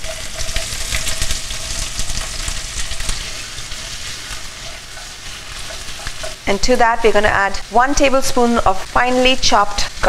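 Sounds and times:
spatula scraping pan: 0.0 - 7.3
onion sizzling in hot oil: 0.0 - 10.0.

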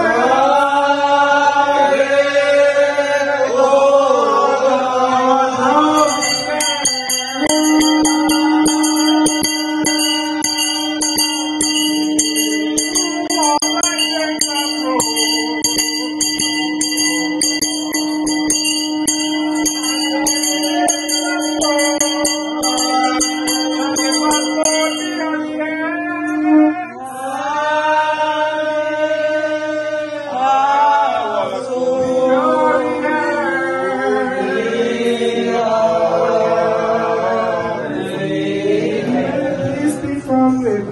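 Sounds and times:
voices chanting: 0.0 - 40.9
brass hand bell ringing: 5.8 - 25.6.

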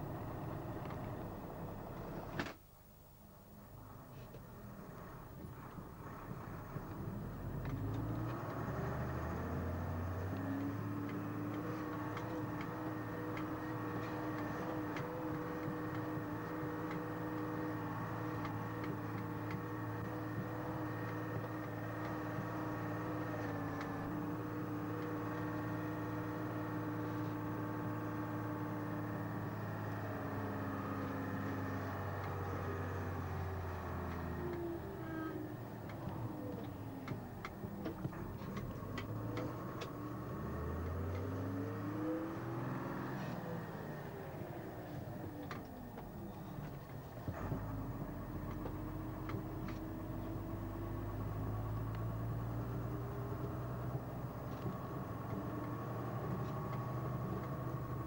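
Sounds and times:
diesel engine running: 0.0 - 2.4, 3.8 - 58.0.

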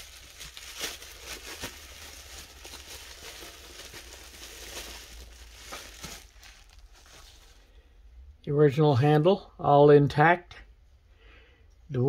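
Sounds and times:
plastic wrapping crinkling: 0.0 - 7.6.

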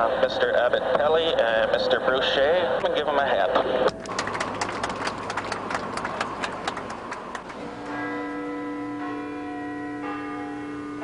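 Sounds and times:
passengers clapping: 3.8 - 7.6
bells ringing long tones: 6.6 - 11.0.

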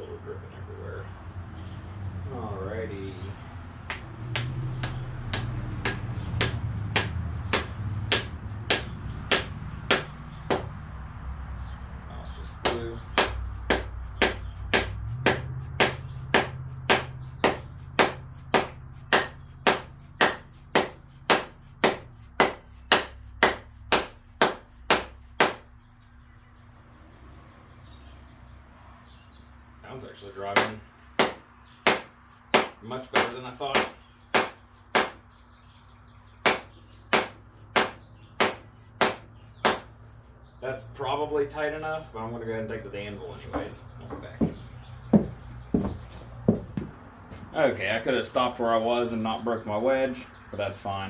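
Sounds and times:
mallet striking wooden wedge: 3.9 - 10.8, 12.6 - 25.7, 30.6 - 35.2, 36.4 - 39.9.

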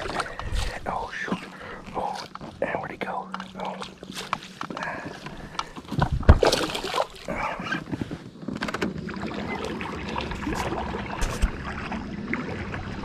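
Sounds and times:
fish splashing at water surface: 6.3 - 7.4
water wash: 6.3 - 7.5, 9.0 - 13.0.

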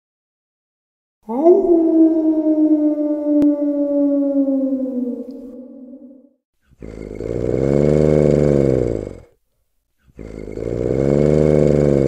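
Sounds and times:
wolf growling: 6.1 - 9.3, 10.2 - 12.0.

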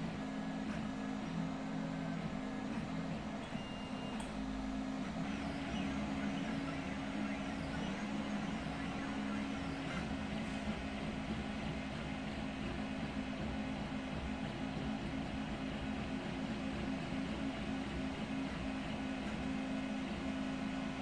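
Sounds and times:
cooling fans running: 0.0 - 21.0
stepper motors whining: 5.1 - 11.1.

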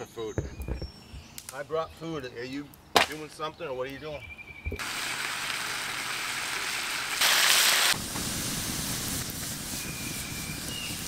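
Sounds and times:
wood fire crackling: 0.9 - 4.0, 4.8 - 11.0
vegetables sizzling in a frying pan: 4.8 - 11.0.

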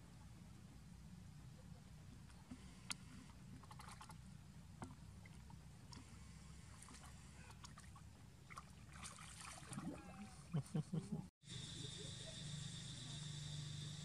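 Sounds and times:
low steady hum: 0.0 - 14.0
small splashes of swimming: 2.2 - 10.6.

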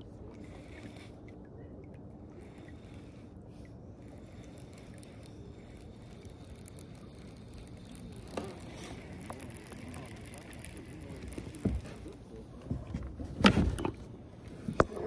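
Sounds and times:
low background rumble: 0.0 - 15.0
fishing reel click: 4.0 - 11.6.

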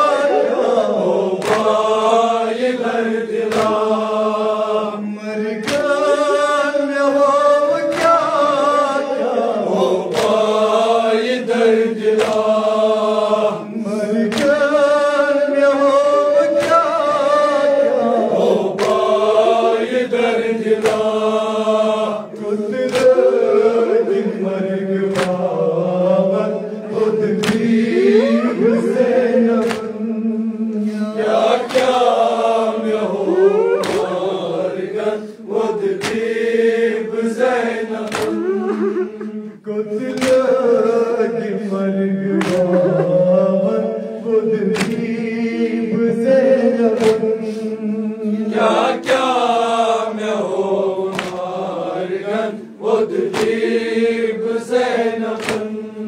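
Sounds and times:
men chanting in unison: 0.0 - 56.0
hand strikes on chests: 5.6 - 6.0, 33.5 - 34.3, 36.0 - 36.3, 38.1 - 38.7, 44.8 - 45.1.

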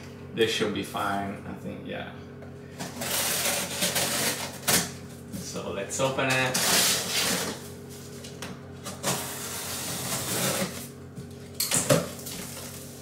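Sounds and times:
packing tape tearing: 2.8 - 4.9, 6.4 - 7.6, 8.8 - 10.9.

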